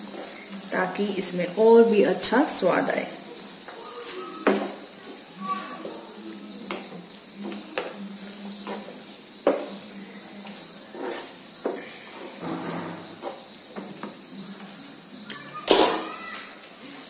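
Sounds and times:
faint sizzle of cooking: 0.0s - 17.0s
wooden spatula scraping a pan: 3.1s - 14.1s.

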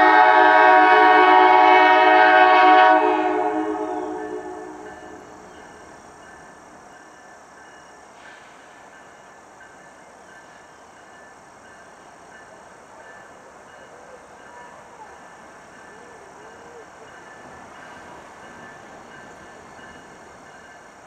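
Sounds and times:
crossing warning bell ringing: 3.6s - 8.0s, 8.9s - 21.0s.

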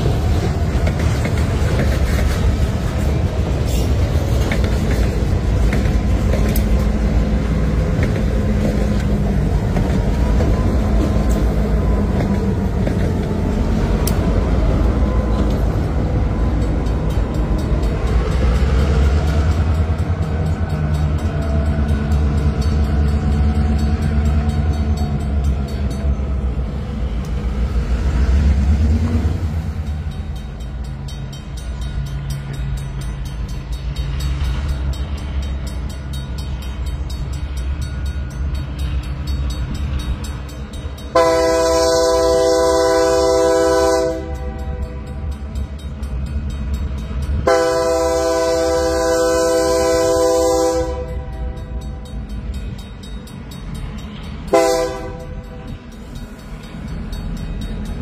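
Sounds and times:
diesel locomotive engines droning: 0.0s - 58.0s
train wheels clicking on rails: 0.0s - 58.0s.

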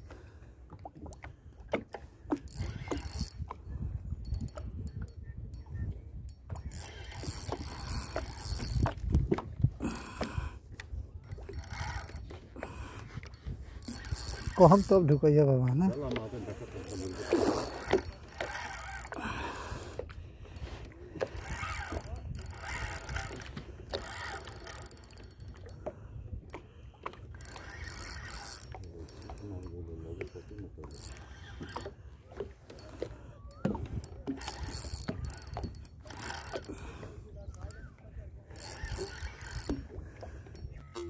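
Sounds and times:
fishing reel cranking: 2.3s - 9.2s, 9.8s - 37.9s, 38.5s - 41.0s.

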